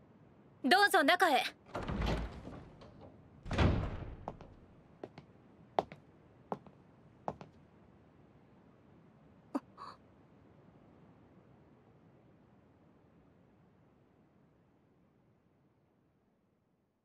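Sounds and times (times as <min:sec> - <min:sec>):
door opening with a dull thud: 0:01.7 - 0:04.6
footsteps walking: 0:04.2 - 0:06.7.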